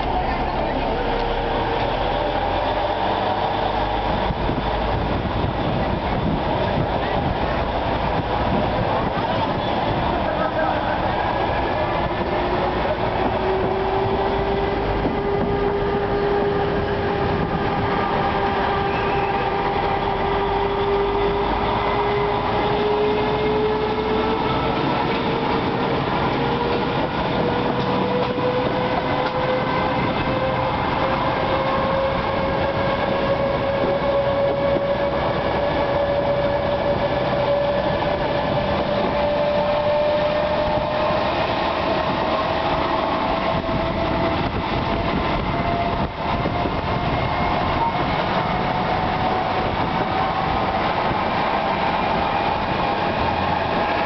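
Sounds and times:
rising whine: 0:00.0 - 0:09.2
diesel train engine drone: 0:00.0 - 0:54.0.

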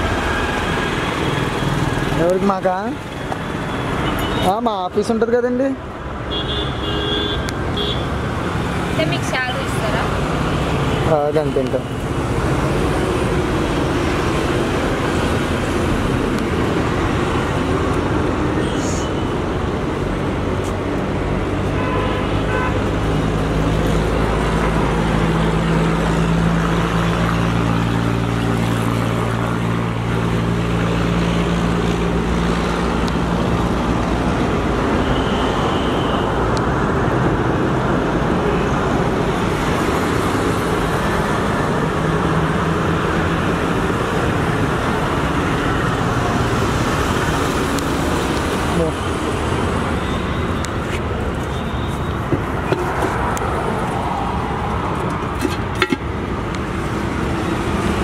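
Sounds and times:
road traffic noise: 0:00.0 - 0:58.0.

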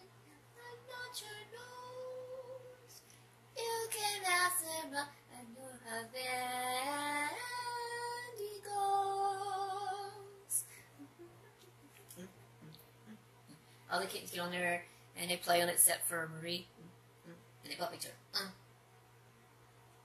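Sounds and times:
woman singing in high voice: 0:00.0 - 0:03.0, 0:03.6 - 0:12.3.

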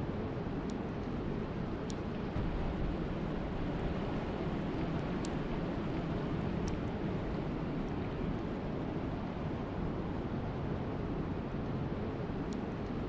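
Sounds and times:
faint sharp ticks: 0:04.8 - 0:05.4, 0:06.6 - 0:06.9, 0:12.5 - 0:13.0.

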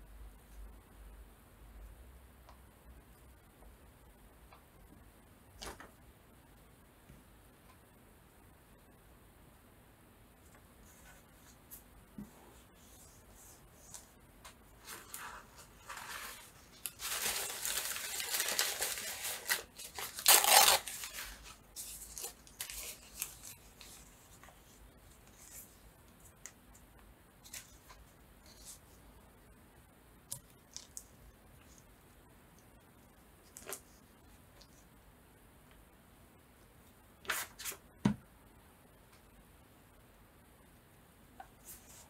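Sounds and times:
paper rustling: 0:10.8 - 0:26.6
paper tearing: 0:14.9 - 0:23.6.

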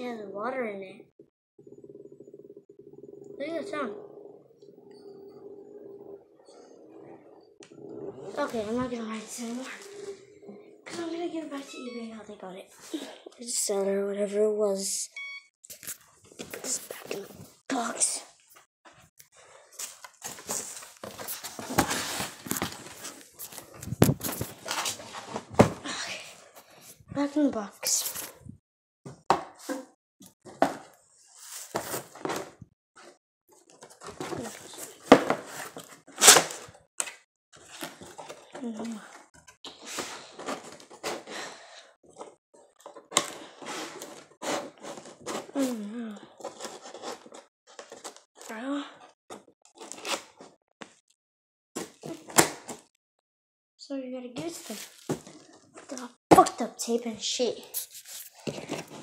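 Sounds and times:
cardboard box rustling and scraping: 0:19.8 - 0:25.8, 0:43.6 - 0:45.6
packaging crinkling and rustling: 0:54.5 - 0:56.1.

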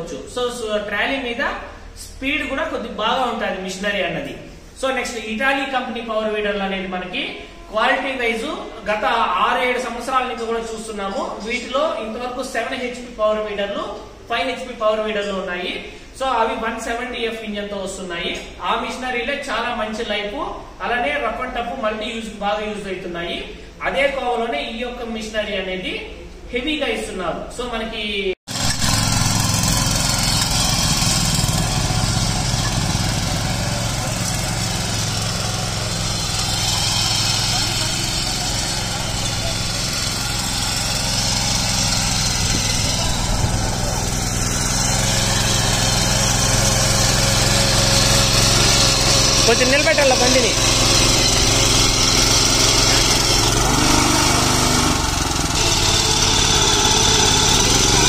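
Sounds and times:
tines tilling soil: 0:28.5 - 0:58.0
weeder engine running under load: 0:28.6 - 0:58.0.

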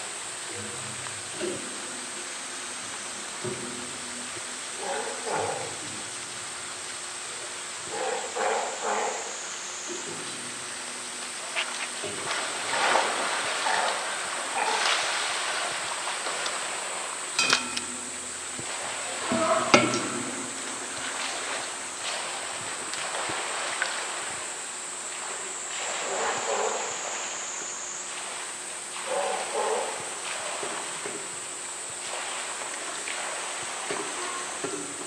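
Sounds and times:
water splashing and sloshing: 0:00.0 - 0:35.0
sharp knocks: 0:17.4 - 0:21.8.

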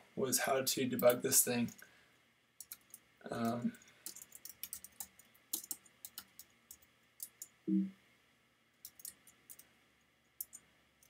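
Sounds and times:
computer keyboard typing: 0:01.0 - 0:01.8, 0:02.6 - 0:07.5, 0:08.8 - 0:09.6, 0:10.4 - 0:10.6.

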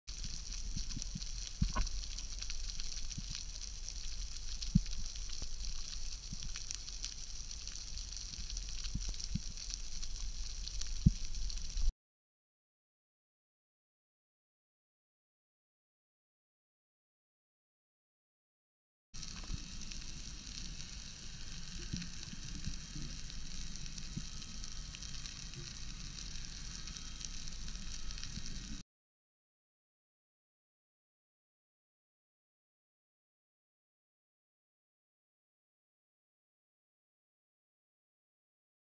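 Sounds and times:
underwater fizzing crackle: 0:00.1 - 0:11.9, 0:19.2 - 0:28.8.

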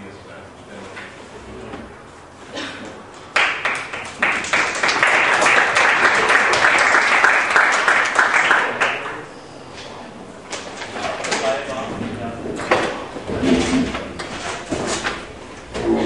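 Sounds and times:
room full of people applauding: 0:03.3 - 0:09.3.

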